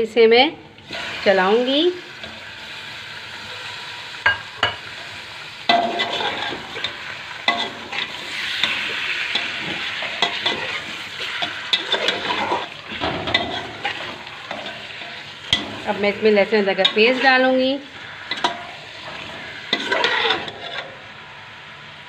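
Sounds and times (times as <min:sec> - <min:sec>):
meat sizzling in hot oil: 0:00.8 - 0:22.0
metal spatula scraping a pot: 0:05.7 - 0:21.1.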